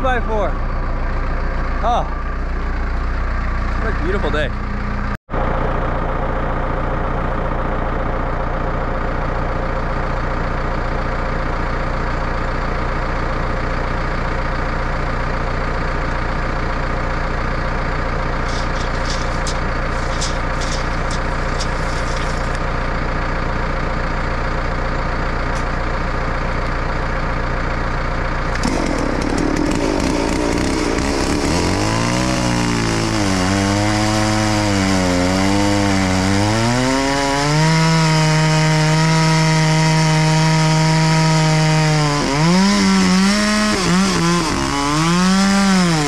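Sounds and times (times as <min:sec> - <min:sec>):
engine idling: 0:00.0 - 0:33.2
chainsaw starting: 0:18.4 - 0:22.6, 0:28.5 - 0:46.0.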